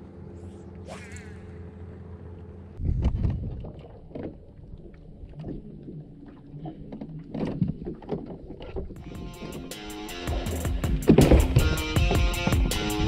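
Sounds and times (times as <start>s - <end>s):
water lapping against hull: 2.8s - 13.0s
knocks and bumps on boat deck: 10.8s - 12.8s.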